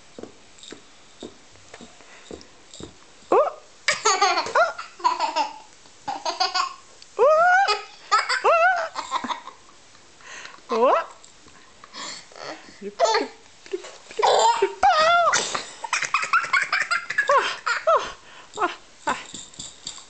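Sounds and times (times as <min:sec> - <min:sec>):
toddler laughing and squealing: 0:14.2 - 0:18.0.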